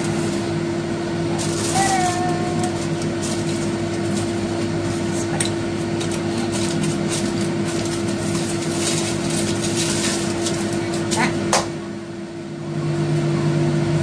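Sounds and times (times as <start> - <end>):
steady background hum: 0.0 - 14.0
aluminium foil crinkling: 1.3 - 11.4.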